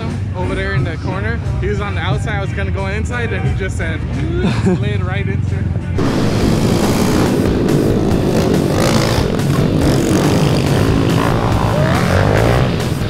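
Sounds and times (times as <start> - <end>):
small motorcycle engines revving: 6.0 - 13.0.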